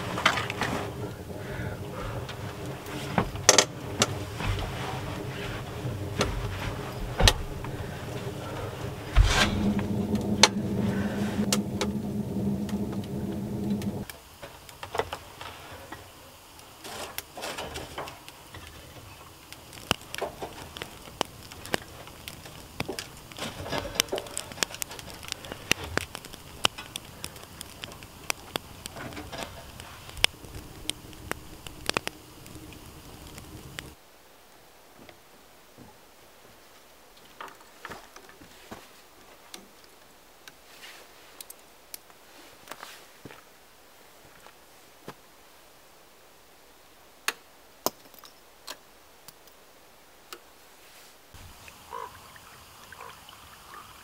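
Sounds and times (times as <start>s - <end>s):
steady mechanical hum: 0.0s - 14.7s, 17.6s - 34.0s
wood stove fire crackling: 0.0s - 53.8s
sharp clicks and ticks: 1.8s - 14.2s, 19.3s - 34.0s.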